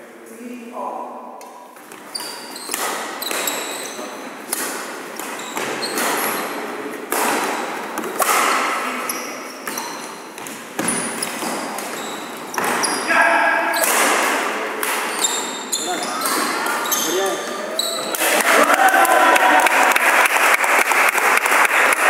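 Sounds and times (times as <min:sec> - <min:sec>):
shoes squeaking on wooden court: 0:01.7 - 0:13.1, 0:13.7 - 0:18.2
rackets striking shuttlecock: 0:02.2 - 0:03.8, 0:04.5 - 0:08.8.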